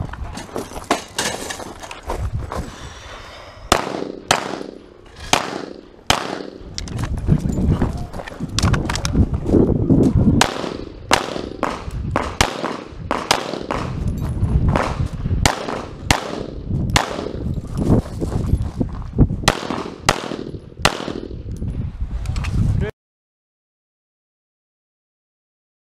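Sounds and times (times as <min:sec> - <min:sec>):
pistol shots: 0:03.7 - 0:06.6, 0:10.4 - 0:14.0, 0:14.8 - 0:17.4, 0:19.4 - 0:21.4.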